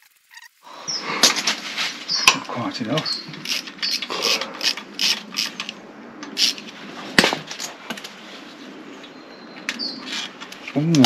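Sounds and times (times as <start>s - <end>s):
ratchet clicking: 3.4s - 5.6s.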